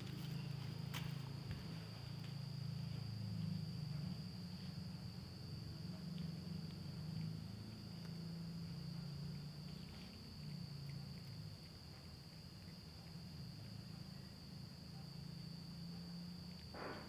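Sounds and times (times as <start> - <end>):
high-pitched insect trill: 0.0 - 17.0
low hum: 0.0 - 17.0
cat chewing: 6.1 - 14.8.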